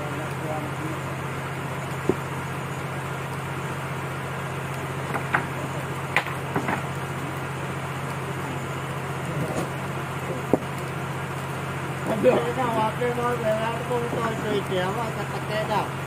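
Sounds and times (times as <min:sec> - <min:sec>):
low engine hum: 0:00.0 - 0:16.0
wooden planks knocking together: 0:05.1 - 0:05.5, 0:06.1 - 0:06.9.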